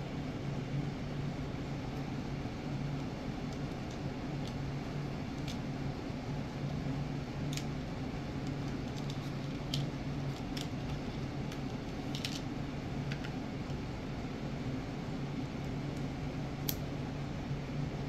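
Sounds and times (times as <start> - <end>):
small parts clicking in plastic box: 8.4 - 12.5.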